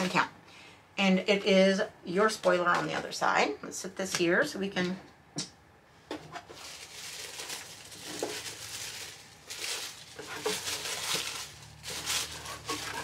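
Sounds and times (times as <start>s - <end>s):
tissue paper rustling: 6.5s - 13.0s.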